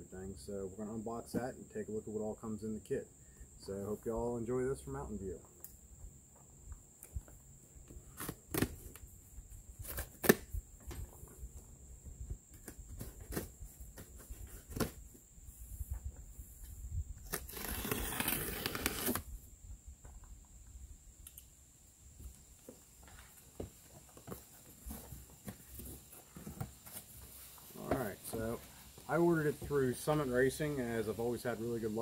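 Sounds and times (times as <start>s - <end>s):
tape ripping along box: 8.1s - 9.1s, 9.8s - 10.6s, 12.5s - 15.1s, 17.2s - 19.4s.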